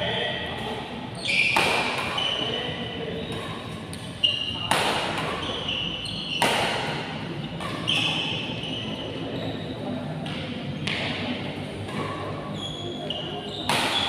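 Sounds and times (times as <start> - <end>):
shoes squeaking on court: 0.0 - 10.0, 11.9 - 14.0
racket hitting shuttlecock: 1.4 - 2.6, 3.3 - 8.5, 10.2 - 12.5, 13.1 - 14.0.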